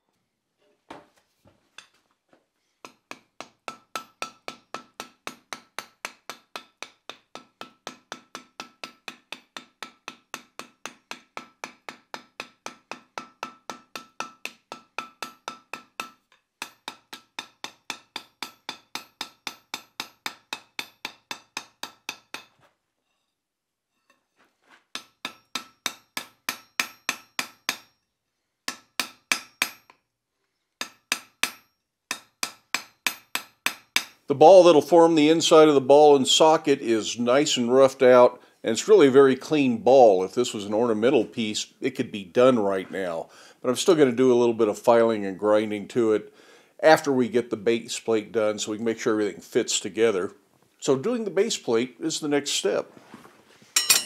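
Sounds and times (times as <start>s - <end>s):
hammer striking steel on anvil: 2.8s - 22.5s, 24.9s - 28.0s, 28.7s - 30.0s, 30.8s - 34.2s, 53.8s - 54.0s.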